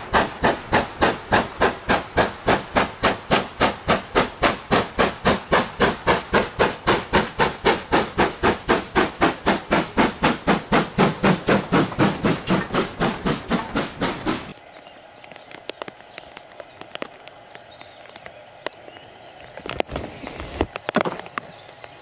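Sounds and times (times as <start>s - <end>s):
steam locomotive chuffing: 0.0s - 14.6s.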